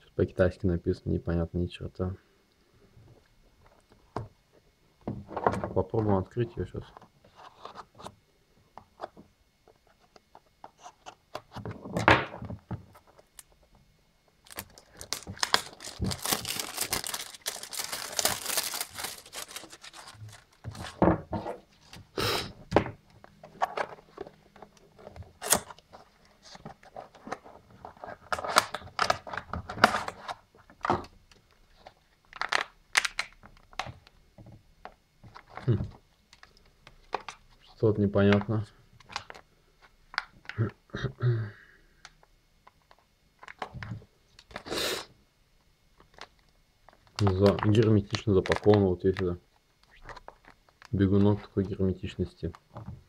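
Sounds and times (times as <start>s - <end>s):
plastic packaging crinkling: 14.4s - 21.0s, 31.7s - 33.7s, 46.0s - 51.4s
cardboard box tearing: 15.0s - 20.9s.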